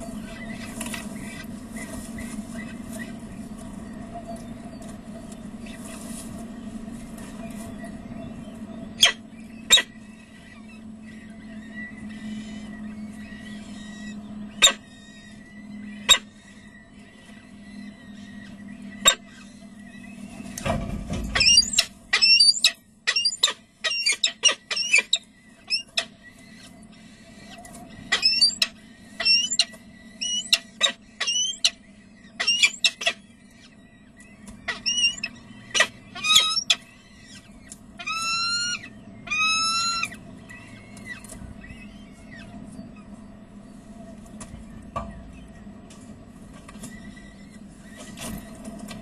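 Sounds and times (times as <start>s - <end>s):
faint steady hum: 0.0s - 49.0s
falcon chicks chirping: 0.0s - 49.0s
longer falcon calls: 32.4s - 33.8s, 34.7s - 37.4s, 38.0s - 40.2s.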